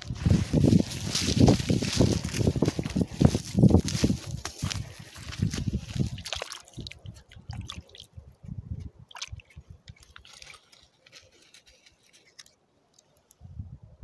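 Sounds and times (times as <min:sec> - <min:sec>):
wet mud squelching: 0:00.1 - 0:12.5
water dripping: 0:04.6 - 0:11.2.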